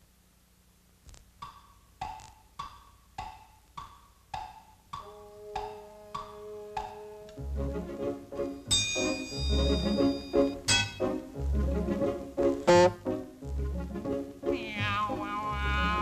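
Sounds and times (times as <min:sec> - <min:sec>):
orchestral cartoon music: 0:05.0 - 0:16.0.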